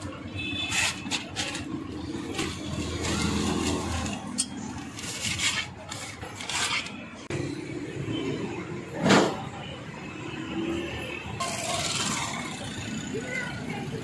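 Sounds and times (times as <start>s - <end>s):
paper rustling and crinkling: 0.6s - 4.2s, 4.8s - 7.0s.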